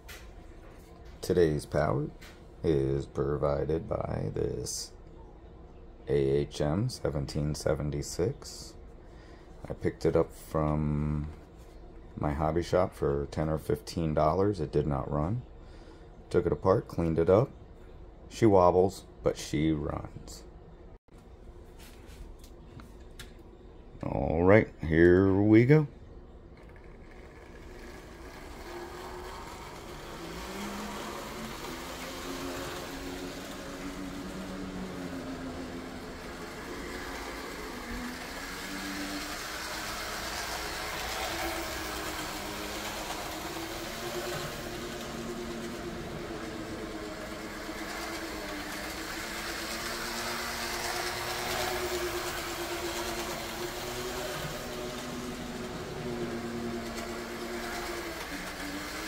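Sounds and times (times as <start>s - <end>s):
model train motor hum: 26.6s - 59.0s
wheels rattling on track: 26.7s - 59.0s.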